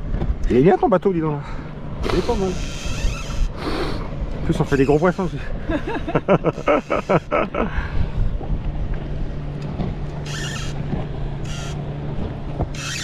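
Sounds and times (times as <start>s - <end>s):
boat motor humming: 0.0s - 13.0s
short hissing bursts: 3.4s - 4.0s
wind buffeting microphone: 7.4s - 12.8s.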